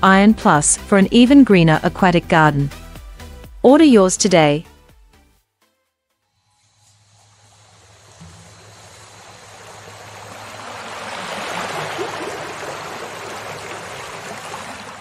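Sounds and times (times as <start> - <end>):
rushing water: 7.6 - 15.0.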